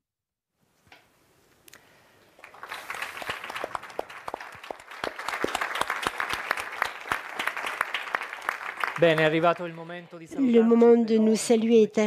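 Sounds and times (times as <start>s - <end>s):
group applauding: 2.4s - 10.4s.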